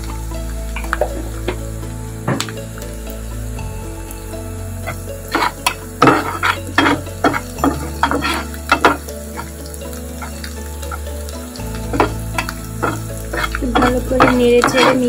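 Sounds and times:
onions sizzling in oil: 0:00.0 - 0:15.0
spatula scraping metal wok: 0:04.8 - 0:11.1, 0:11.9 - 0:15.0.

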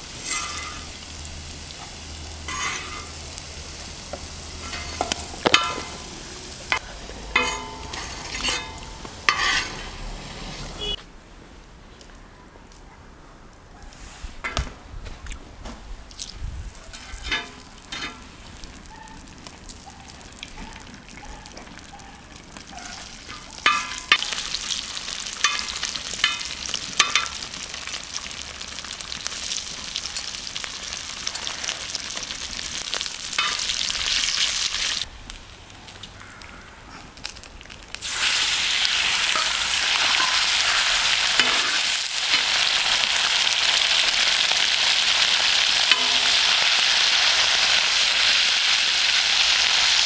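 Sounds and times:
metal spatula scraping a pan: 0:00.0 - 0:01.1, 0:02.4 - 0:03.2, 0:04.6 - 0:11.0, 0:17.1 - 0:18.3, 0:39.0 - 0:42.8
fat frying in a pan: 0:00.0 - 0:11.0, 0:16.1 - 0:50.0.

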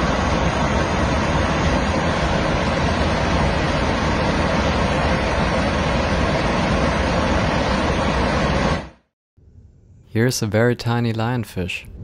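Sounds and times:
airliner cabin engine rush: 0:00.0 - 0:09.2.

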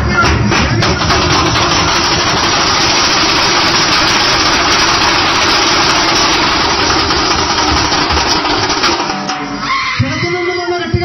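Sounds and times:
frame drums beaten with sticks: 0:00.0 - 0:09.7.

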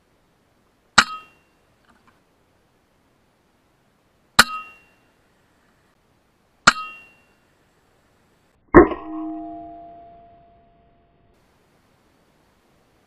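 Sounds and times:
loud ringing: 0:08.8 - 0:11.4.

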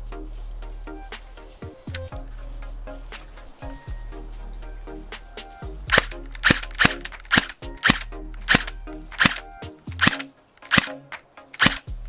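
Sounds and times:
background music: 0:00.0 - 0:12.0
airsoft pistol shots: 0:05.9 - 0:09.4, 0:10.0 - 0:11.0, 0:11.6 - 0:11.9.

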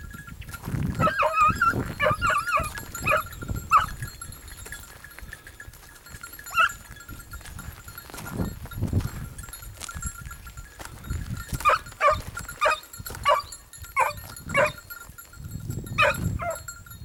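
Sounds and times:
hounds yelping: 0:00.9 - 0:04.2, 0:06.4 - 0:07.0, 0:11.6 - 0:14.9, 0:16.0 - 0:16.8.

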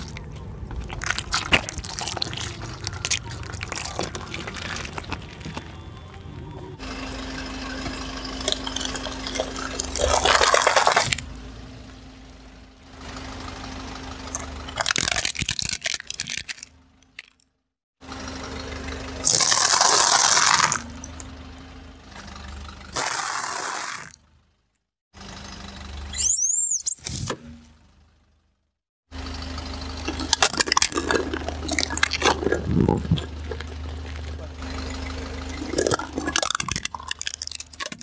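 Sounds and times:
tyre crunching objects: 0:00.0 - 0:06.4, 0:07.9 - 0:11.3, 0:14.3 - 0:17.4, 0:19.2 - 0:21.2, 0:22.9 - 0:24.2, 0:30.0 - 0:34.8, 0:35.5 - 0:38.0
car engine running: 0:00.0 - 0:17.4, 0:18.0 - 0:26.6, 0:27.4 - 0:38.0.

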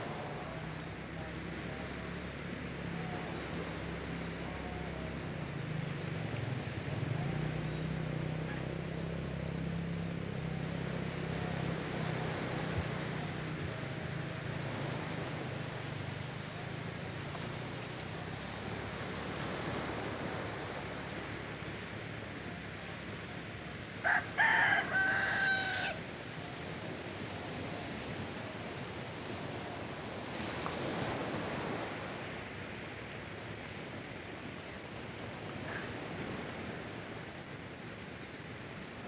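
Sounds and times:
small waves washing on shore: 0:00.0 - 0:39.0
rooster crowing: 0:24.0 - 0:26.1.

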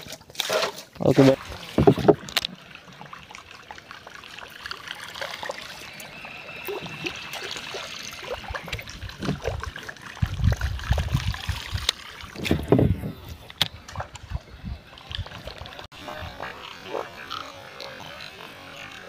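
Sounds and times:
water lapping against boat hull: 0:00.0 - 0:19.0
low bumps and knocks: 0:12.4 - 0:13.2.

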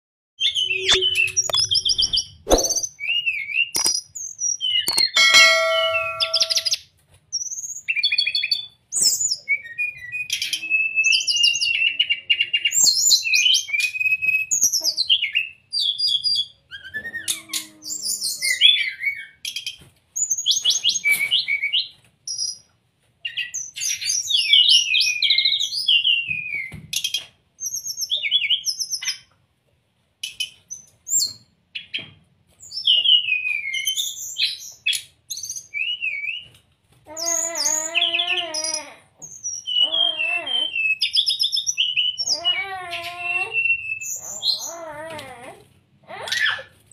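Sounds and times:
bird singing chirps and trills: 0:04.6 - 0:06.8.

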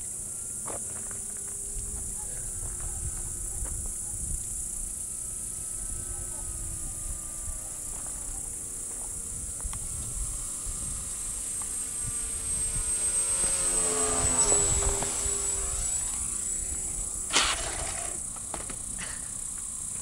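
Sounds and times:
model plane propeller humming: 0:00.0 - 0:20.0
model plane clattering on road: 0:17.3 - 0:19.7.

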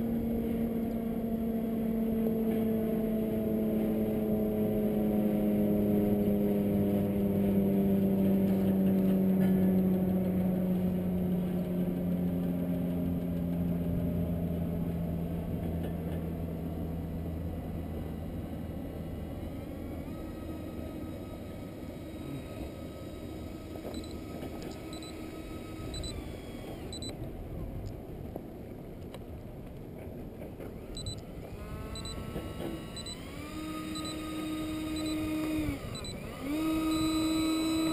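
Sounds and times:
airliner engines running down: 0:00.0 - 0:27.4, 0:28.0 - 0:37.9
short high beeps: 0:24.0 - 0:24.2, 0:24.9 - 0:25.2, 0:25.9 - 0:26.2, 0:26.9 - 0:27.1, 0:31.0 - 0:31.2, 0:32.0 - 0:32.2, 0:32.9 - 0:33.2, 0:34.0 - 0:34.2, 0:35.0 - 0:35.2.

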